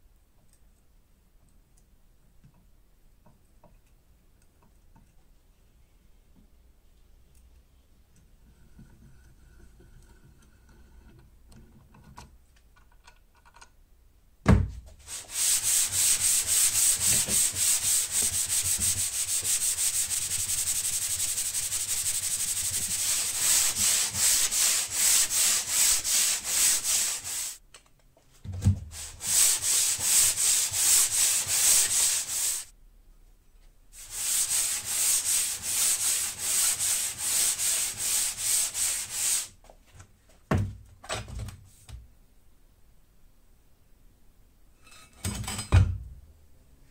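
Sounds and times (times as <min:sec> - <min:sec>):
steel plate rasping on abrasive cloth: 0:15.1 - 0:27.6, 0:29.0 - 0:32.7.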